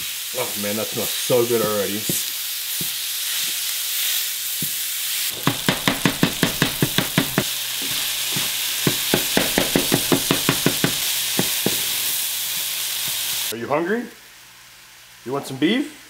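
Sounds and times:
beef sizzling in a pan: 0:00.0 - 0:13.6, 0:14.2 - 0:15.3
spatula tapping against pan: 0:05.4 - 0:07.4, 0:08.4 - 0:11.8.

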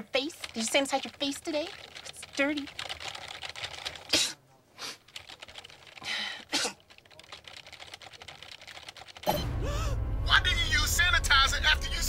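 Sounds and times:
computer keyboard typing: 0:00.0 - 0:04.2, 0:05.0 - 0:09.4
music: 0:09.3 - 0:12.0
man's voice: 0:10.2 - 0:12.0.

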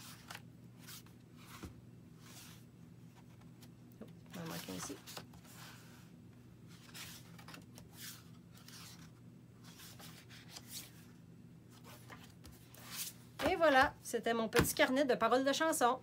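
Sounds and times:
paper pages turning: 0:00.0 - 0:02.6, 0:06.7 - 0:11.1.

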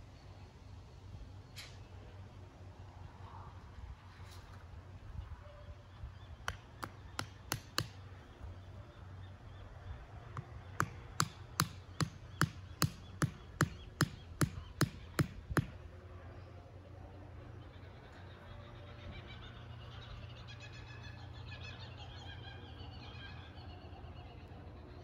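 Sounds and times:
hammer striking wooden stake: 0:06.4 - 0:08.0, 0:10.4 - 0:15.8.

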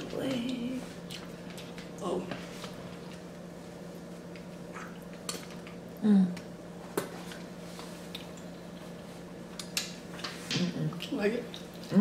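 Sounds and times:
steady low hum: 0:00.0 - 0:12.0
person humming mm: 0:06.0 - 0:06.4.

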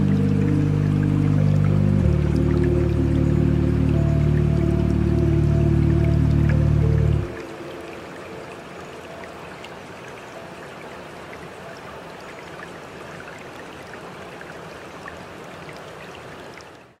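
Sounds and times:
running water: 0:00.0 - 0:17.0.

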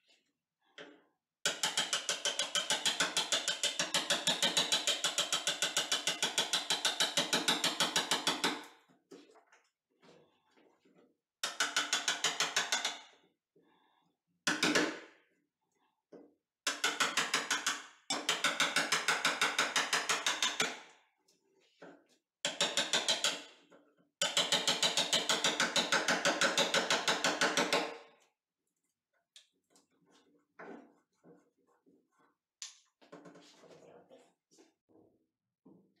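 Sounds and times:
hammer tapping chisel into wood: 0:01.5 - 0:08.7, 0:11.4 - 0:13.0, 0:16.7 - 0:20.8, 0:22.5 - 0:23.4, 0:24.2 - 0:28.0.

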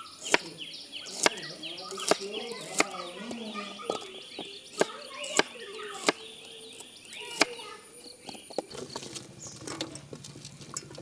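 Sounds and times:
knife chopping on wooden board: 0:00.2 - 0:00.5, 0:01.1 - 0:01.4, 0:02.0 - 0:03.0, 0:03.9 - 0:06.2.

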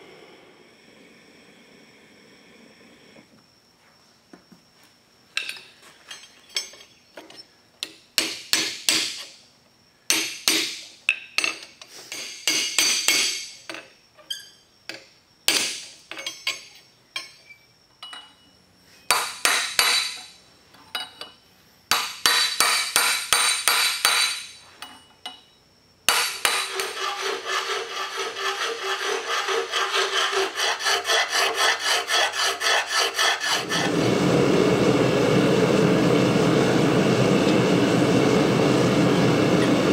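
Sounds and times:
hammer striking steel on anvil: 0:08.2 - 0:09.3, 0:10.1 - 0:10.8, 0:11.4 - 0:13.6, 0:19.1 - 0:20.3, 0:21.9 - 0:24.6, 0:26.1 - 0:27.1
gas forge burner roar: 0:32.8 - 0:39.9.

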